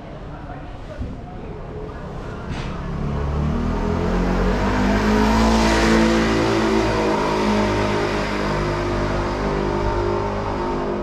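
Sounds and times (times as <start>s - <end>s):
motor vehicle passing: 2.2s - 11.0s.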